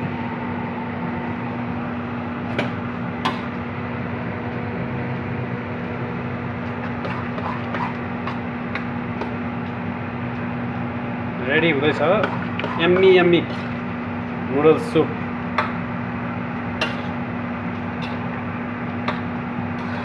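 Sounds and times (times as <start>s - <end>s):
kitchen hiss with low hum: 0.0s - 20.0s
metal utensil scraping wok: 12.2s - 13.8s, 19.7s - 20.0s.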